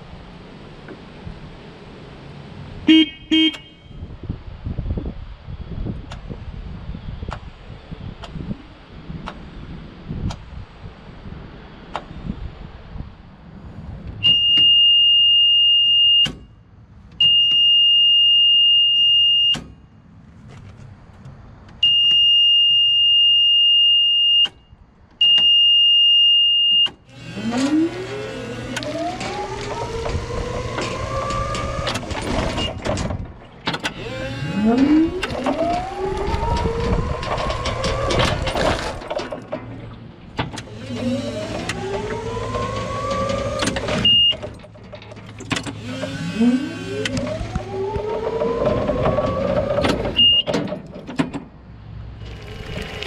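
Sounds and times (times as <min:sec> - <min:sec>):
forklift horn beeping: 0:02.9 - 0:04.1, 0:14.2 - 0:16.4, 0:17.2 - 0:19.6, 0:21.8 - 0:24.5, 0:43.9 - 0:44.5, 0:50.2 - 0:50.6
electric motor whining: 0:27.1 - 0:32.6, 0:33.9 - 0:38.8, 0:40.6 - 0:44.1, 0:45.6 - 0:50.1.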